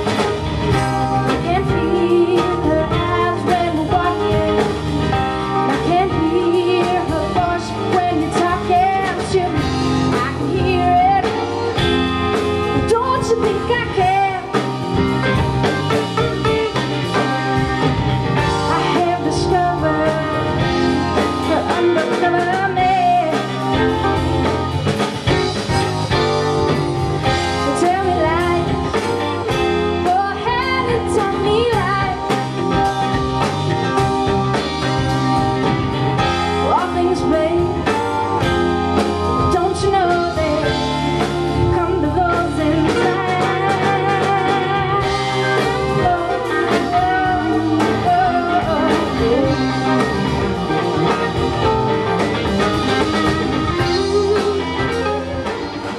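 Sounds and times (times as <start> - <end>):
drum kit: 0.0 - 55.9
electric guitar: 0.0 - 55.9
woman singing lead: 0.0 - 55.9.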